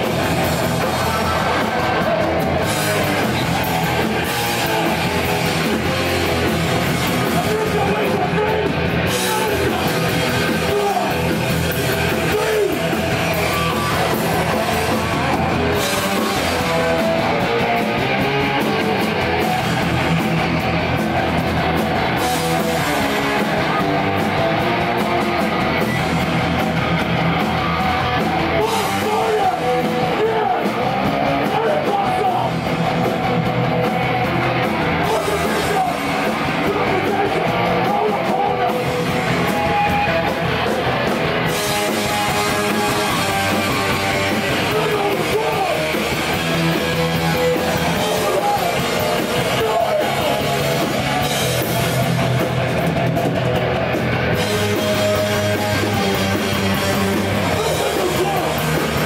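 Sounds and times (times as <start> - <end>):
vocals: 0.0 - 17.8, 28.2 - 33.5, 34.6 - 52.6, 54.4 - 59.0
bass guitar: 0.0 - 59.0
drum kit: 0.0 - 59.0
electric guitar: 0.0 - 59.0.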